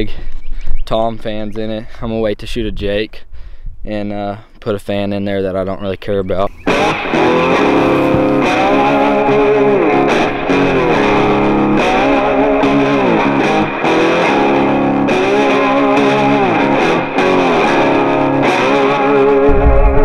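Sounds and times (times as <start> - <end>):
guitar music with sliding chords: 6.6 - 20.0.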